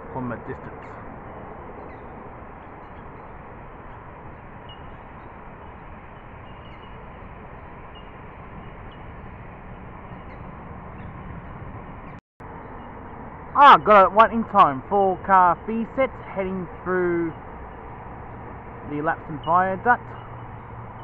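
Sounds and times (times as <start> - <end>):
outdoor hiss and rumble: 0.0 - 21.0
faint bird chirps: 1.8 - 7.2.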